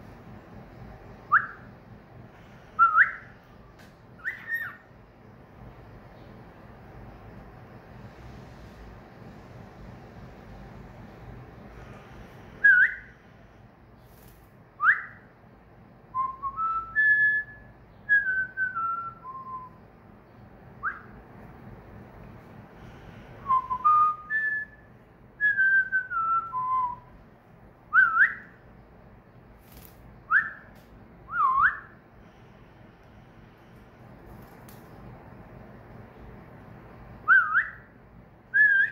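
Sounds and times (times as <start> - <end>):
cockatiel whistling: 1.3 - 1.7, 2.8 - 3.3, 4.2 - 4.8, 27.9 - 28.5, 37.2 - 37.9.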